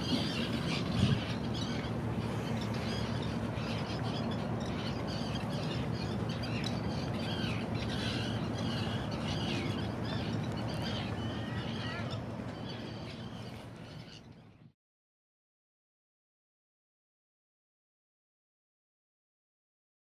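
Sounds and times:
seagulls calling: 0:00.0 - 0:14.6.

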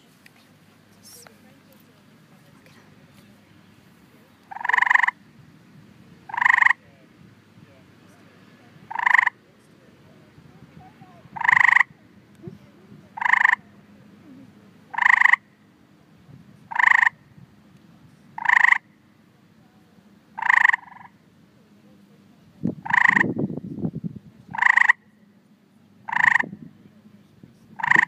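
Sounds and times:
tree frog buzzy chirp: 0:04.4 - 0:05.2, 0:06.3 - 0:06.8, 0:08.9 - 0:09.4, 0:11.3 - 0:12.0, 0:13.1 - 0:13.6, 0:14.9 - 0:15.5, 0:16.7 - 0:17.2, 0:18.4 - 0:18.9, 0:20.4 - 0:21.2, 0:22.8 - 0:23.5, 0:24.5 - 0:25.2, 0:26.0 - 0:26.6, 0:27.8 - 0:28.0.

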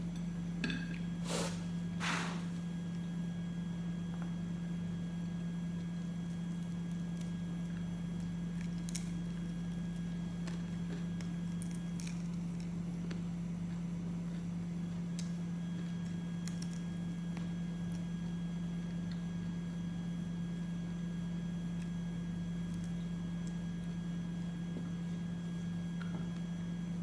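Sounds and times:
biting food: 0:05.8 - 0:19.8.

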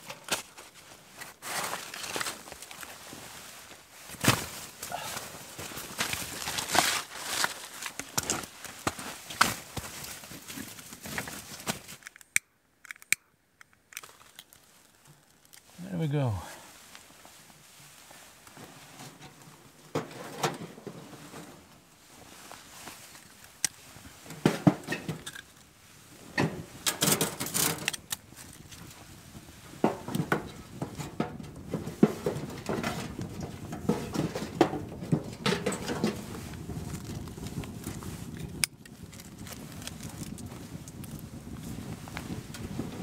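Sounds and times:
clinks and knocks of wood stove: 0:18.5 - 0:21.8, 0:24.2 - 0:25.5, 0:26.3 - 0:41.4.

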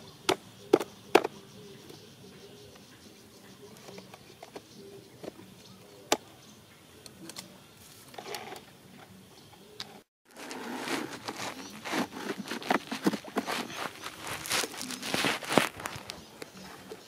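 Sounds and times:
bamboo poles clicking and tapping: 0:00.3 - 0:02.0, 0:03.6 - 0:05.4
rustling: 0:10.3 - 0:17.0.

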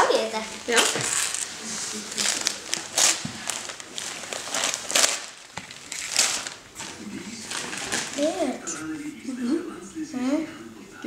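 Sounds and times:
wrapping paper tearing: 0:00.0 - 0:08.7.

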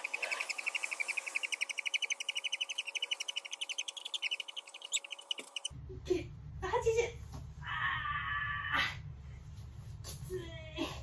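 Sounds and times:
high-pitched chirping trill: 0:00.0 - 0:05.7.

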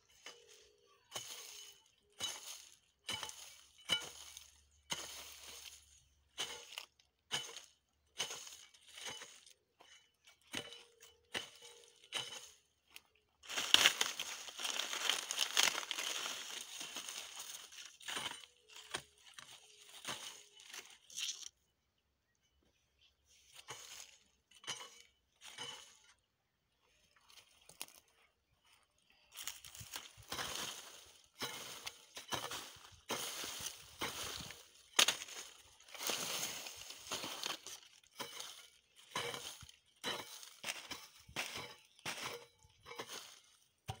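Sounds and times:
hoe scraping dry weeds: 0:00.0 - 0:21.5, 0:23.3 - 0:28.1, 0:29.3 - 0:44.0
dry leaves rustling: 0:00.2 - 0:07.7, 0:11.7 - 0:21.5, 0:23.5 - 0:24.2, 0:29.3 - 0:43.5.

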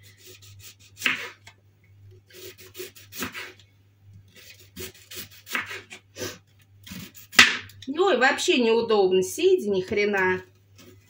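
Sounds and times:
knife slicing onion on board: 0:00.1 - 0:01.5, 0:02.3 - 0:03.6, 0:04.3 - 0:06.0, 0:06.9 - 0:07.7.

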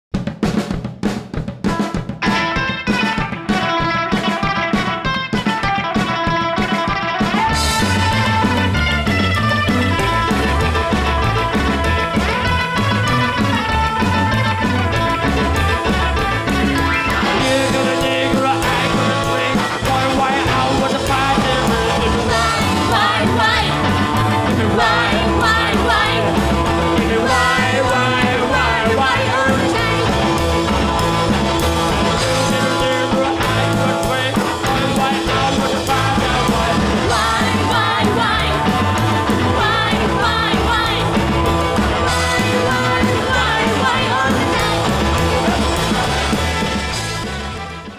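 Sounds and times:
song with singing and beat: 0:16.9 - 0:46.9.

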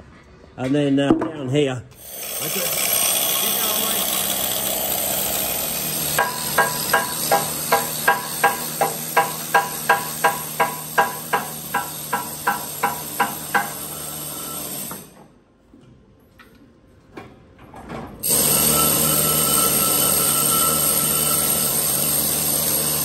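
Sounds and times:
hammer striking steel hull: 0:06.1 - 0:13.9.

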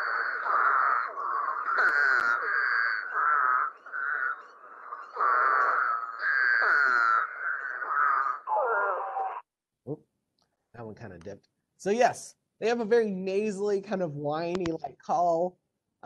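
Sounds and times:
toads calling: 0:00.0 - 0:09.4.

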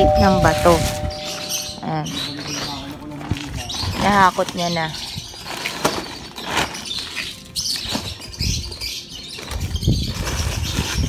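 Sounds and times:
plastic sacks rustling: 0:05.3 - 0:08.3.

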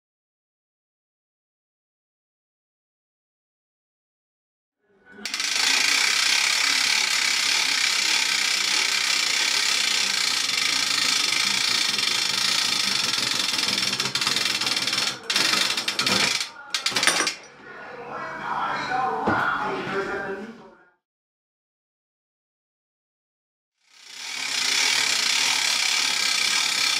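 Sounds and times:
rope-tensioning rig running: 0:05.2 - 0:17.4, 0:23.9 - 0:26.9.

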